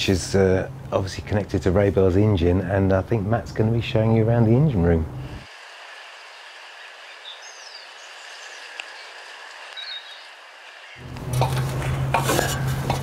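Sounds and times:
steady hiss: 5.2s - 11.0s
faint bird chirps: 6.2s - 11.0s.

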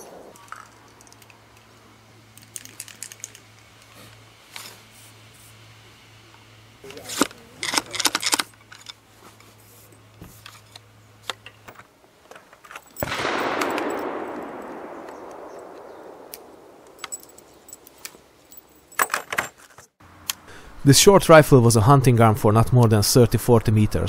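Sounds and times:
metallic clicks from rifle: 12.3s - 18.2s.

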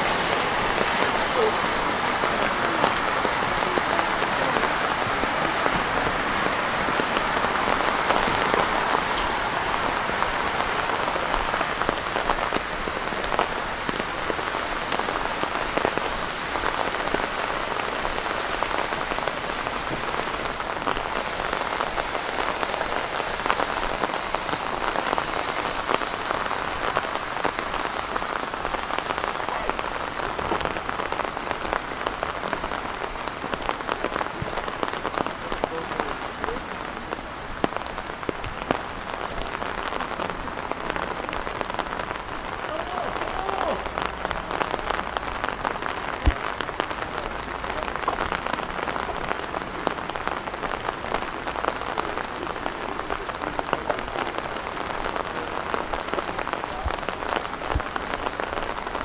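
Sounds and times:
raindrops ticking close by: 0.0s - 59.0s
steady rain falling: 0.0s - 59.0s.

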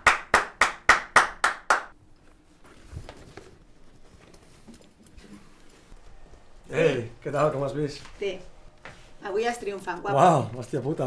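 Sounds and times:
person clapping hands: 0.0s - 2.0s.

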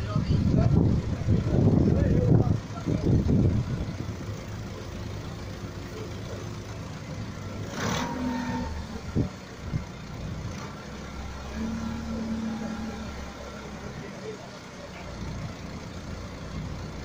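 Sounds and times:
engine running steadily: 0.0s - 17.0s.

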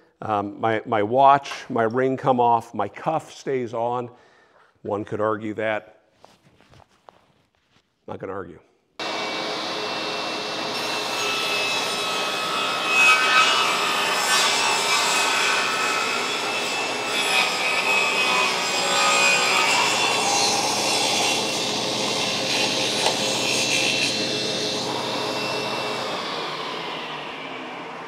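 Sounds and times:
table saw ripping wood: 9.0s - 28.0s.

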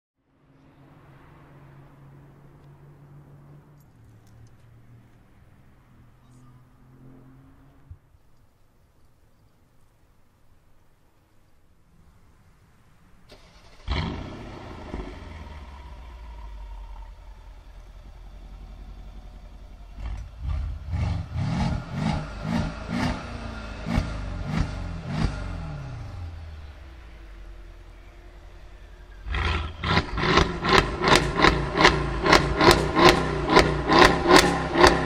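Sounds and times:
car engine idling: 13.1s - 35.0s
car engine revving: 13.3s - 35.0s.

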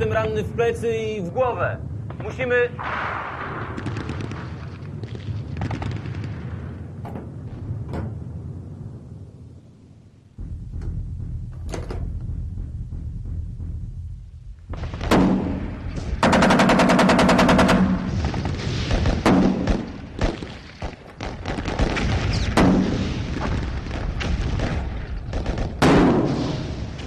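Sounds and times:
low rumble: 0.0s - 20.5s
heavy gunshots: 2.1s - 7.9s, 14.6s - 27.0s
rifle shots: 2.8s - 6.7s, 14.8s - 26.8s
machine-gun burst: 14.8s - 20.5s.

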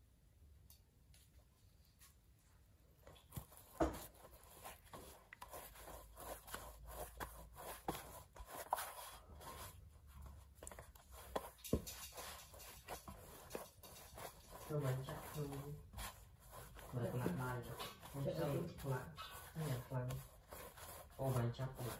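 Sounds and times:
hands kneading dough: 1.8s - 21.9s.

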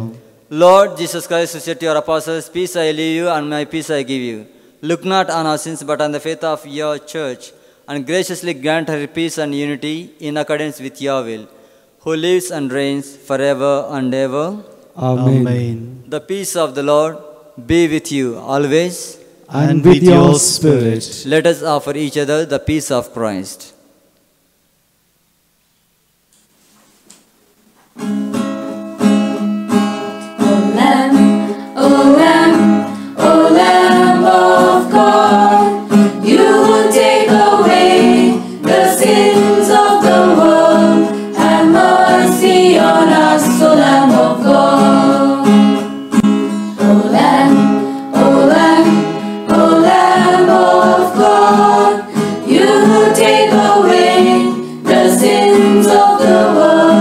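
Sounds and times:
hymn singing: 19.5s - 21.4s, 30.0s - 57.0s
acoustic guitar: 26.3s - 57.0s.

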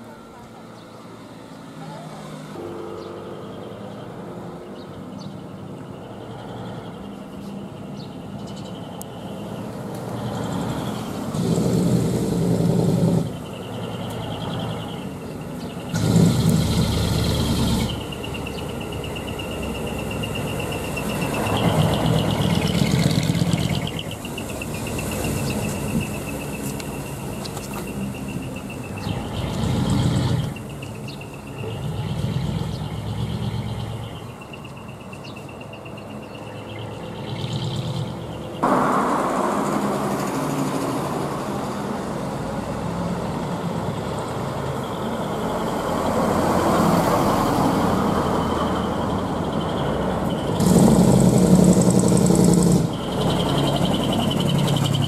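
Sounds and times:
diesel truck exhaust: 10.2s - 15.0s, 15.7s - 27.6s, 28.4s - 34.3s, 37.0s - 55.0s.

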